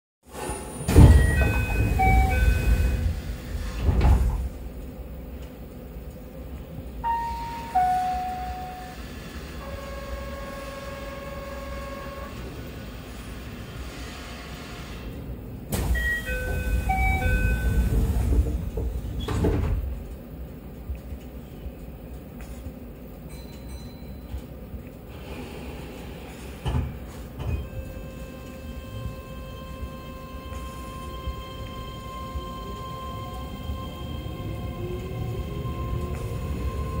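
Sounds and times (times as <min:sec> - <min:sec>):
train doors sliding: 0:00.3 - 0:05.6, 0:07.0 - 0:20.2, 0:25.1 - 0:37.0
doors closing with a thud: 0:00.4 - 0:04.6, 0:15.7 - 0:20.0
door chime: 0:00.9 - 0:03.0, 0:07.0 - 0:09.0, 0:16.0 - 0:17.9, 0:23.3 - 0:24.3.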